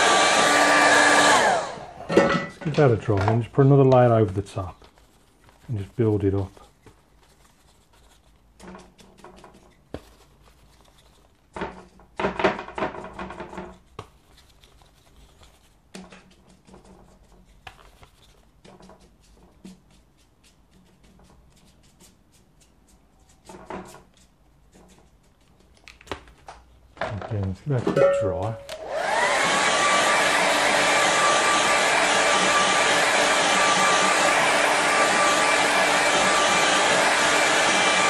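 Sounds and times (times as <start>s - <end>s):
brush scrubbing on paper: 3.6s - 12.0s, 13.6s - 25.8s.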